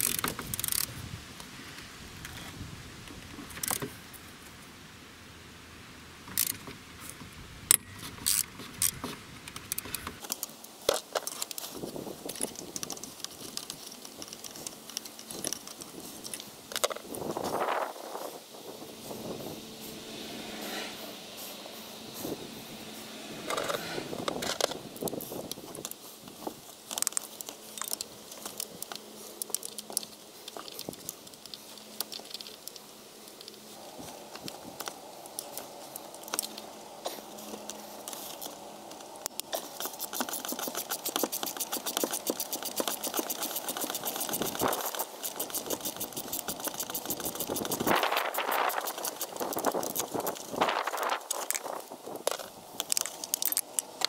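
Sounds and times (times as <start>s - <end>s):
hand tools clicking on metal: 0.0s - 0.9s, 39.2s - 54.0s
steady hum: 15.5s - 30.5s
fast even ticking: 39.6s - 50.6s.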